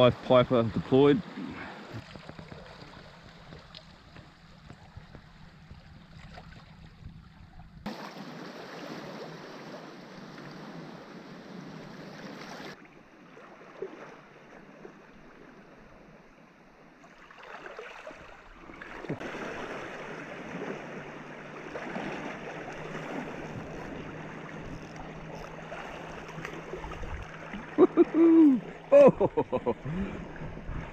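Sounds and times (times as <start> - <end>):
small waves lapping on rocks: 16.9 - 29.0.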